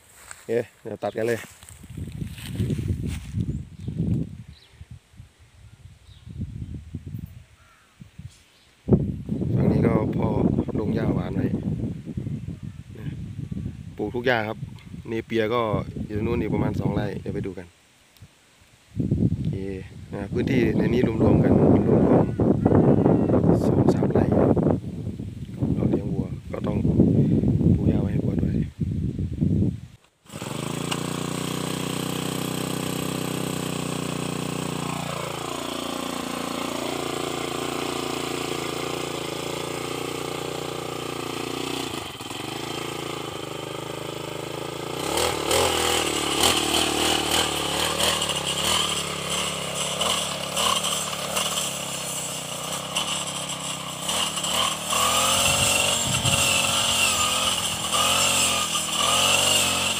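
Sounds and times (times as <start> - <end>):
brush cutter cutting grass: 0.0 - 4.7, 9.3 - 11.7, 13.5 - 18.3, 19.0 - 22.6, 30.0 - 59.9
brush cutter engine: 0.0 - 4.7, 9.2 - 11.8, 13.1 - 17.6, 19.4 - 24.7, 30.0 - 59.9.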